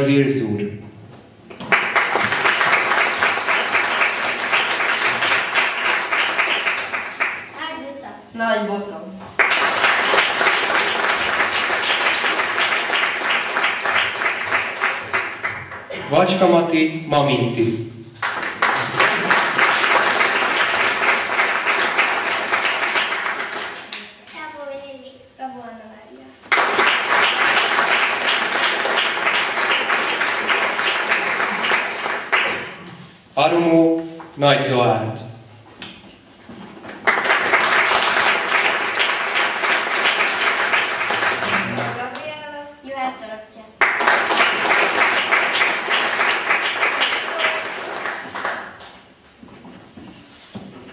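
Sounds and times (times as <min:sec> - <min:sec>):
audience applauding: 0:01.5 - 0:07.6, 0:09.4 - 0:16.0, 0:18.2 - 0:24.0, 0:26.5 - 0:32.9, 0:36.8 - 0:42.2, 0:43.8 - 0:49.0.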